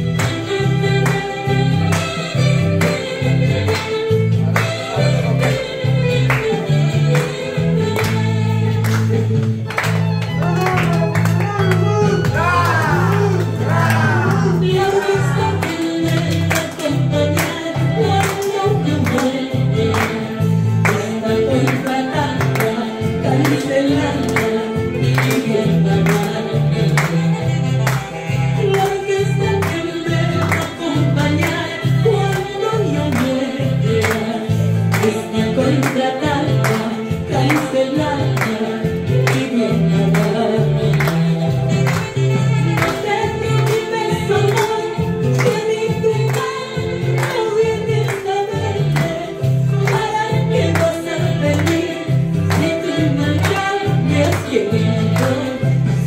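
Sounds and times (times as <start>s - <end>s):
band music with singing: 0.0s - 56.0s.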